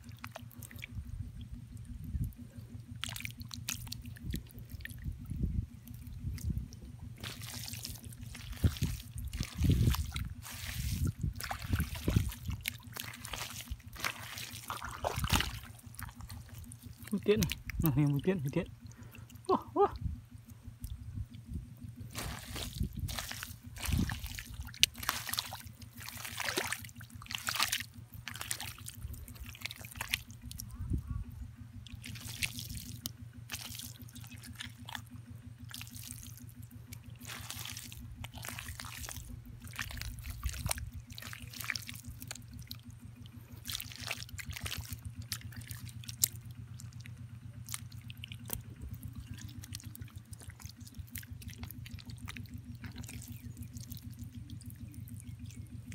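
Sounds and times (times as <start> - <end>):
low hum: 0.0 - 55.9
wet mud squelching: 0.0 - 55.9
water trickling and dripping: 2.9 - 19.5, 22.1 - 30.6, 31.8 - 55.9.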